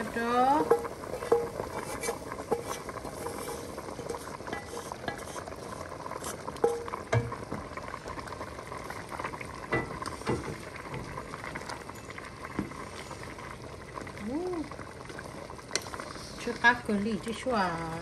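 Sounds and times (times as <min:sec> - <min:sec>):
spatula scraping frying pan: 0:00.0 - 0:06.9
wooden spoon stirring pot: 0:00.0 - 0:08.1, 0:08.8 - 0:13.4
bubbling hiss: 0:00.0 - 0:18.0
wood knocking on pan: 0:00.2 - 0:05.4, 0:06.6 - 0:07.7, 0:09.7 - 0:11.1.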